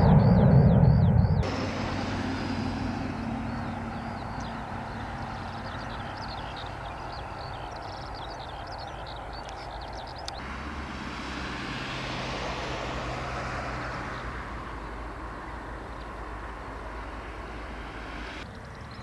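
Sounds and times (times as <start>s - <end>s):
airliner engines rumbling: 0.0s - 19.0s.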